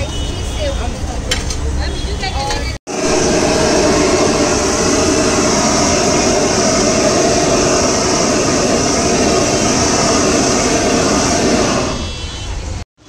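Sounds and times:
gas blowtorch rushing: 2.9 - 12.6.

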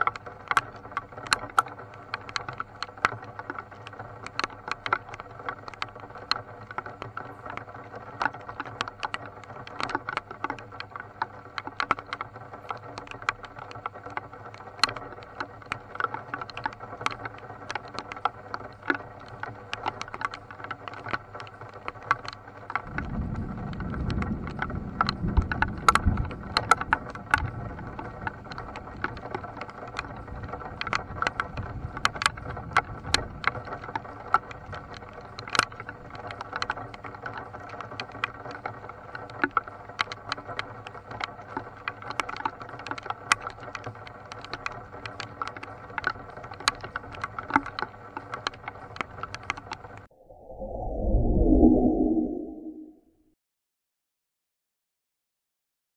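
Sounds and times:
rain tapping on car roof: 22.8 - 29.1
rumble of thunder: 22.9 - 28.0.

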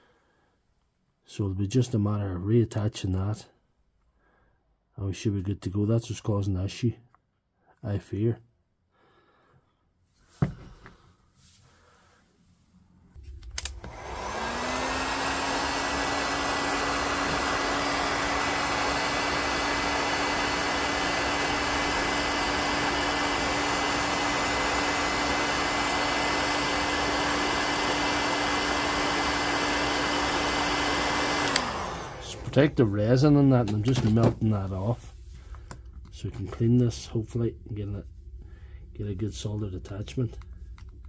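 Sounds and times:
heat gun fan whirring: 13.1 - 41.0.

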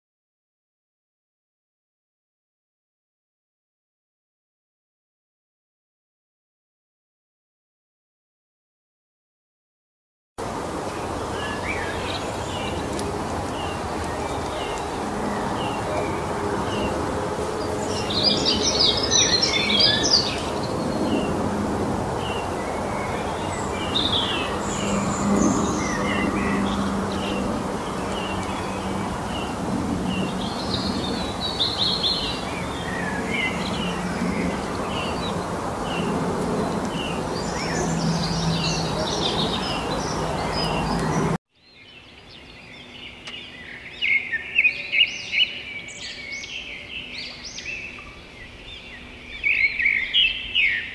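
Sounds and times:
outdoor background noise: 10.4 - 50.9
small birds chirping: 10.9 - 21.4, 22.2 - 50.9.

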